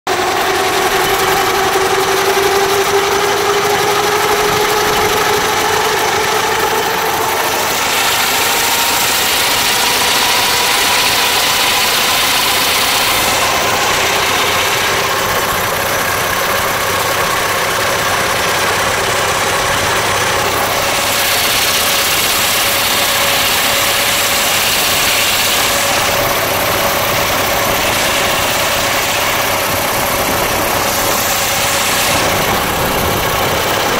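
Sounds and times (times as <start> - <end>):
steam road locomotive running: 0.1 - 33.9
steam hiss: 20.7 - 33.7.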